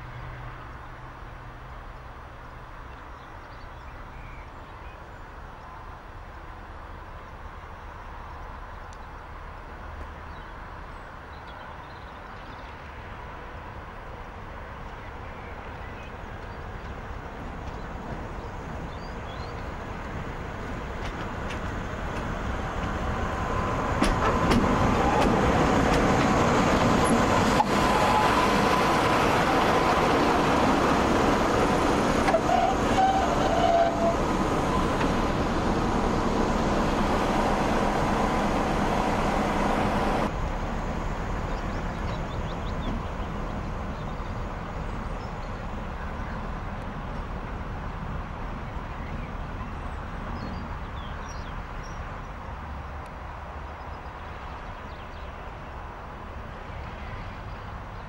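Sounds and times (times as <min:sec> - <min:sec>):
diesel locomotive engine running: 0:15.7 - 0:48.8.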